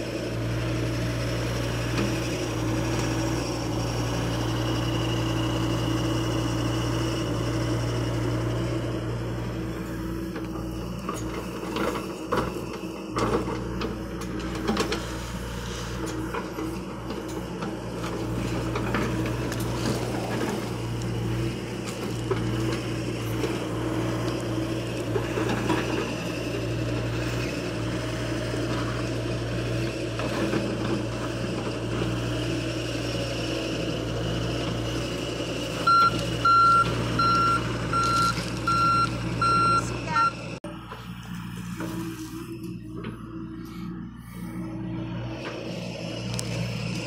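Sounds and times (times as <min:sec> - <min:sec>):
excavator diesel engine running: 0:00.0 - 0:47.0
travel alarm beeping: 0:35.8 - 0:40.4.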